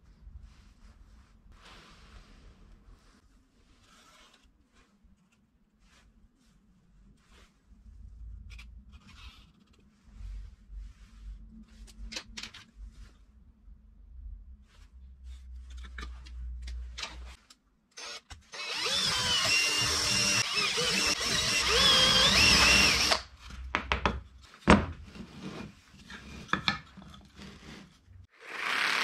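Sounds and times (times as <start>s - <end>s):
power tool motor running: 18.0s - 23.2s.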